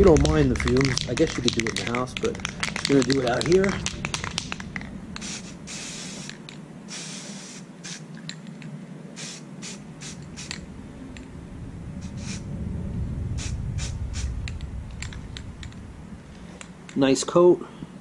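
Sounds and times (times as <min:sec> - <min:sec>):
aerosol spray hiss: 0:05.2 - 0:08.2, 0:09.2 - 0:10.6, 0:12.0 - 0:12.5, 0:13.4 - 0:14.3.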